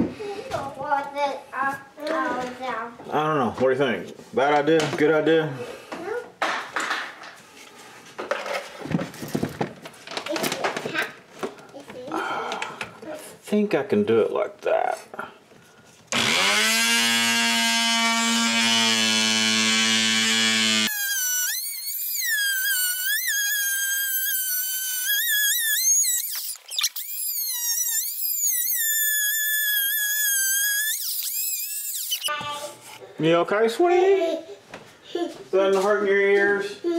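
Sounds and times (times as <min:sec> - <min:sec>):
oscillating multi-tool cutting wood: 0:16.1 - 0:32.3.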